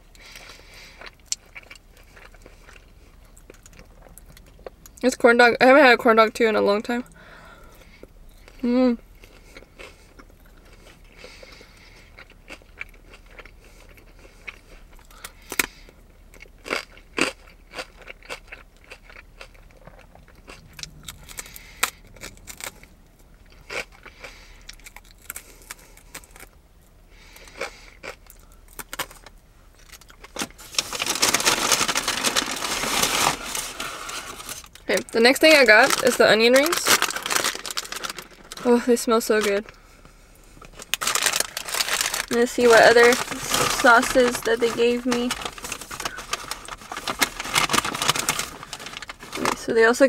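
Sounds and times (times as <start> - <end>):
person chewing crunchy food: 0.1 - 5.0, 7.7 - 34.9, 36.7 - 38.6, 39.6 - 49.4
loud rustling: 30.4 - 34.7, 40.8 - 49.6.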